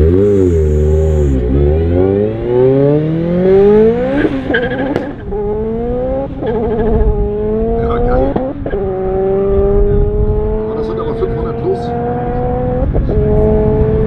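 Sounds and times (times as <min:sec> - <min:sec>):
car engine accelerating hard: 0:00.0 - 0:14.0.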